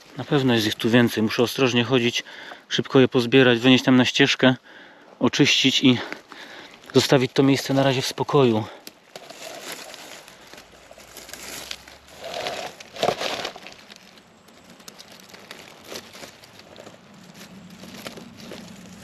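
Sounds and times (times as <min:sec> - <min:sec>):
dry leaves rustling and crackling: 0:00.0 - 0:02.1, 0:06.8 - 0:19.0.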